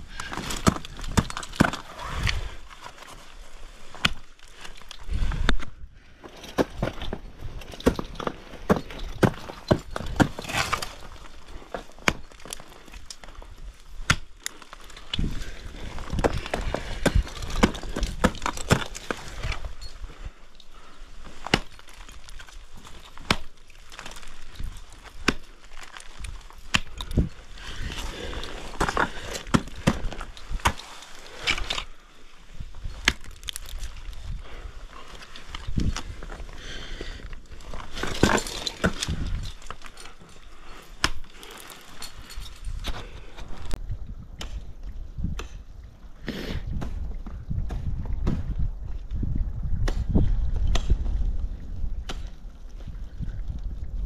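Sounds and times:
wind noise on microphone: 0.0 - 2.7, 5.0 - 11.1, 15.0 - 20.9, 26.2 - 30.8, 32.5 - 40.8, 42.0 - 54.0
scraping crunch: 0.0 - 43.8
ice axes striking ice: 0.1 - 3.0, 3.8 - 13.3, 13.9 - 19.8, 20.8 - 31.9, 32.8 - 34.2, 35.2 - 40.3, 40.9 - 43.0, 49.8 - 51.2
ice breaking off: 7.7 - 13.2, 35.2 - 40.3
ice tools striking ice: 21.4 - 31.9, 37.8 - 40.3.

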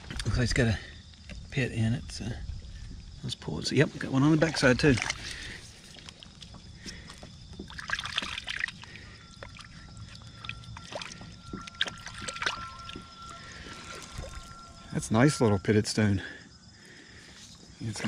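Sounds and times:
water sloshing and splashing: 4.0 - 14.9.

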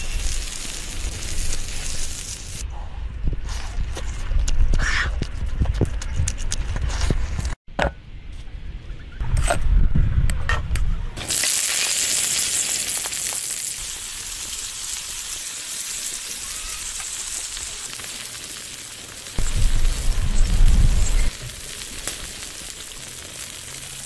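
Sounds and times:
lobster sizzling on hot stone: 0.0 - 2.6, 11.2 - 24.0
low rumble: 19.4 - 21.8.

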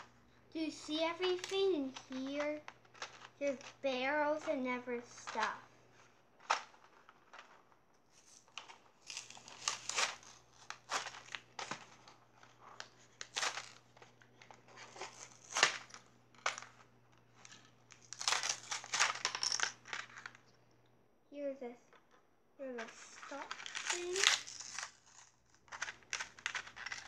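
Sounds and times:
plastic packaging crinkling: 0.8 - 20.5, 22.8 - 27.0
cardboard tearing: 8.2 - 13.8, 14.6 - 16.6, 17.4 - 20.3, 22.9 - 27.0.

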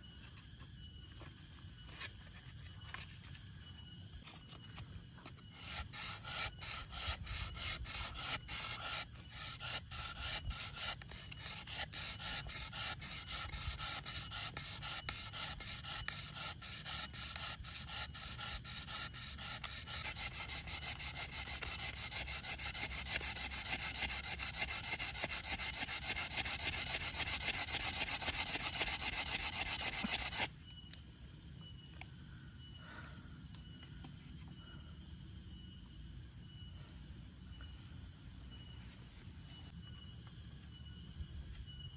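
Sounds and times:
bamboo sawing with dry rasping: 5.2 - 30.5.

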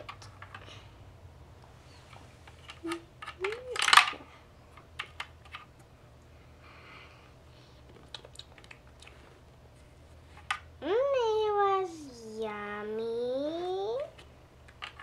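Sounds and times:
plastic toy rattle: 2.5 - 4.2
plastic toy pieces clicking: 2.6 - 4.2, 14.7 - 15.0.

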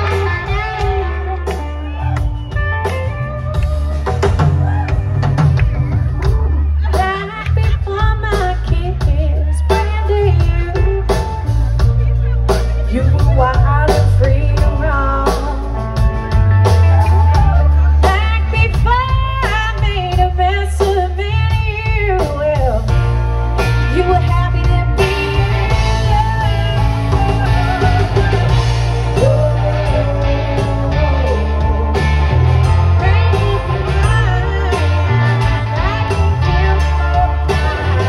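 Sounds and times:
blues-rock band playing: 0.0 - 38.0
woman singing: 6.8 - 16.0, 18.0 - 23.1, 23.8 - 38.0.

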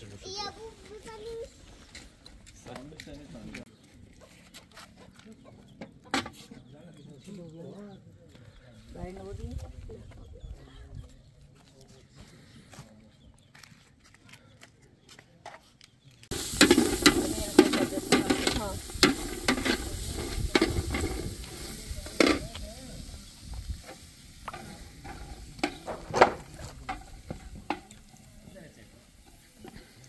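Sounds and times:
stirring clicks and scrapes: 16.2 - 22.6
food sizzling in hot pan: 16.3 - 30.0.

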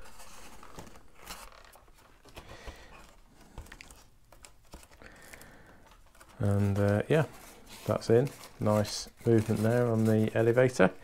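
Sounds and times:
foam rubbing and creaking: 6.4 - 11.0.

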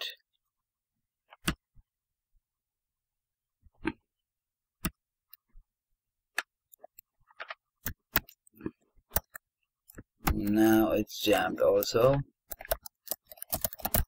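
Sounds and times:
computer keyboard keystrokes: 12.5 - 14.0.

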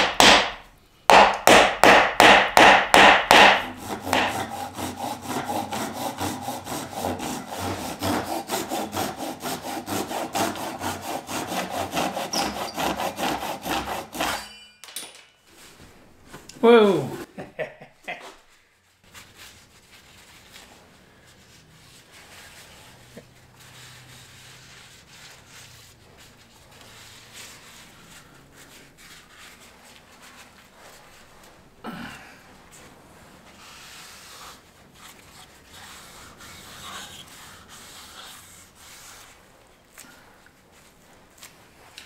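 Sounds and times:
wood rubbed on sandpaper: 3.7 - 14.4, 18.4 - 31.6, 33.2 - 39.6.

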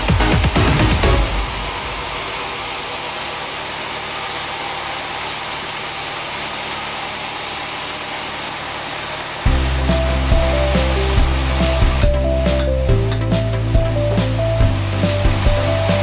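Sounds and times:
low machine hum: 0.1 - 16.0.

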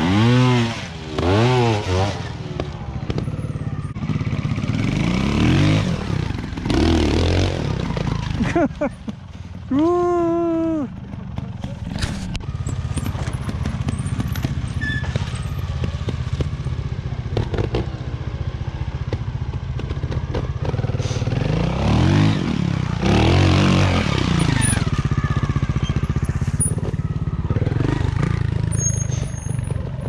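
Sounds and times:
motorcycle engine ticking over: 8.3 - 17.8.

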